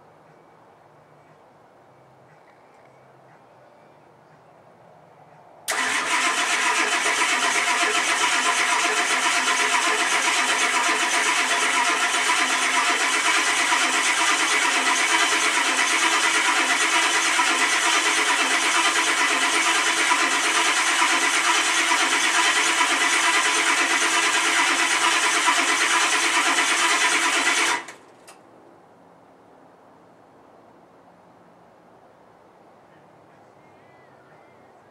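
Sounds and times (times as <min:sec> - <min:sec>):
diesel engine cranking: 0:05.7 - 0:28.4.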